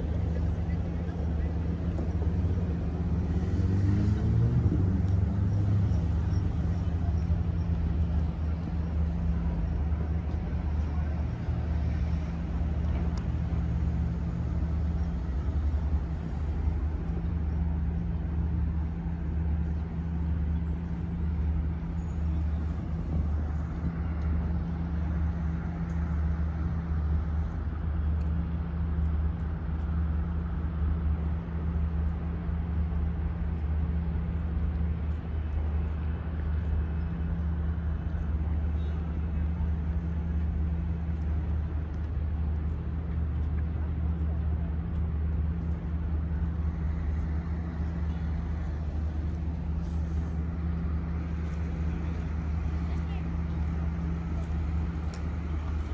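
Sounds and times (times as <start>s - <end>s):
low machinery hum: 0.0s - 55.9s.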